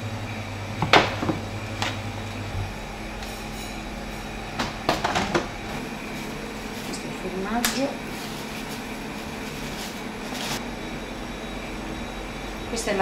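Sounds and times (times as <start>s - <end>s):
steady low hum: 0.0s - 13.0s
kitchenware knocking and clinking: 4.6s - 5.5s.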